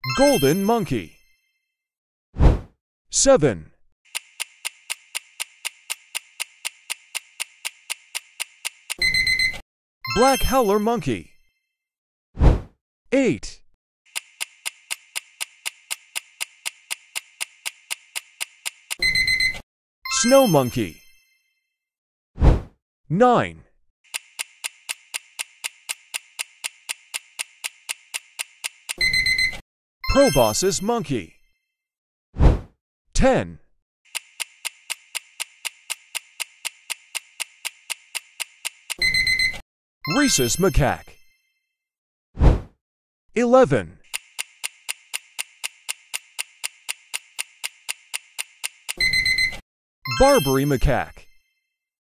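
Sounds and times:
clock ticking: 4.1 - 9.6, 14.1 - 19.6, 24.1 - 29.6, 34.1 - 39.6, 44.1 - 49.6
high-pitched alert tone: 49.0 - 51.4.

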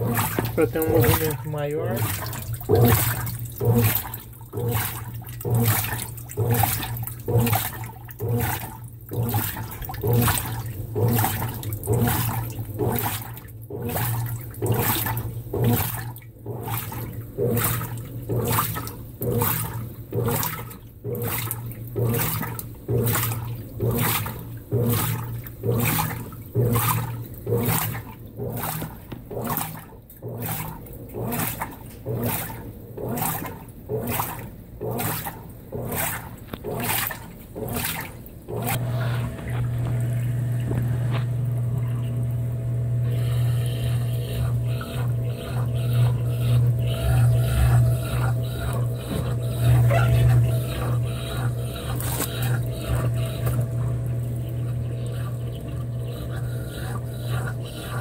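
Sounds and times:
washing machine motor hum: 0.0 - 58.0
water sloshing in washing machine: 0.0 - 58.0.

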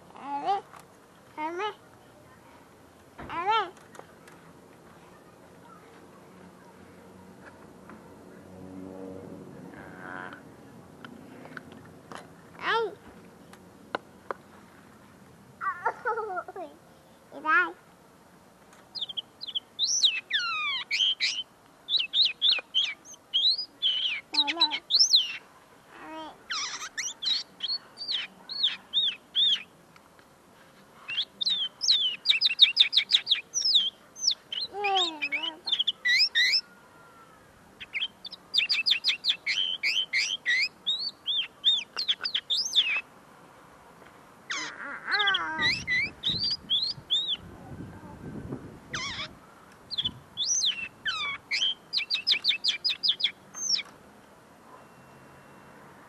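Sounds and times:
bird twittering song: 18.9 - 25.5, 26.4 - 29.8, 31.1 - 36.7, 37.8 - 43.1, 44.5 - 47.5, 48.3 - 53.9.

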